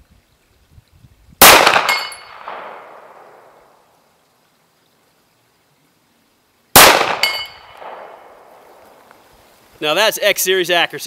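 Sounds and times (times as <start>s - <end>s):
gunshot echo: 1.4s - 3.2s, 6.8s - 8.2s
pistol shot: 1.4s - 3.2s, 6.8s - 8.2s
steel plate ringing: 1.9s - 2.3s, 7.2s - 7.7s.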